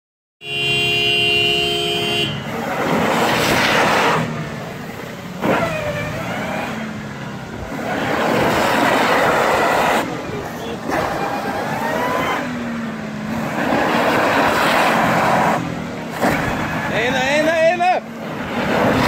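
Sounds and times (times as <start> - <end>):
steady horn-like tone: 0.4 - 2.4
car engine revving under load: 0.5 - 19.0.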